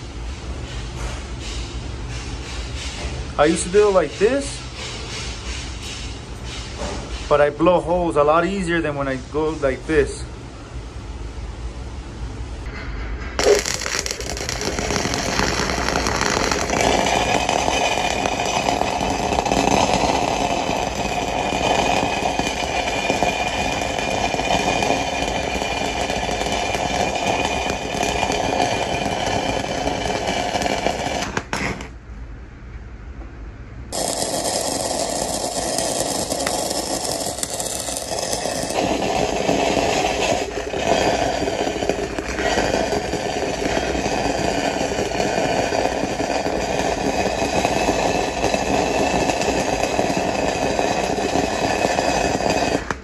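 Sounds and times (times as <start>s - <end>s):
welding arc crackling: 13.4s - 32.0s, 33.9s - 53.0s.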